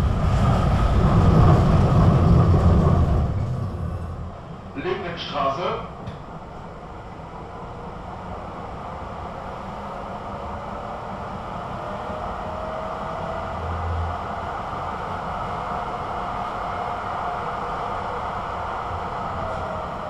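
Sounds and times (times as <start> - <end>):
rail rumble: 0.0 - 20.0
tram motor whine: 5.8 - 20.0.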